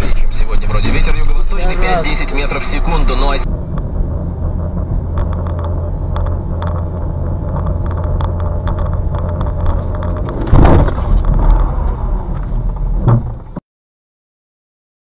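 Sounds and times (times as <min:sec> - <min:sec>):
car road and engine rumble: 0:00.0 - 0:13.6
clicks and rattles: 0:04.8 - 0:11.7
loud car crash: 0:09.8 - 0:13.6.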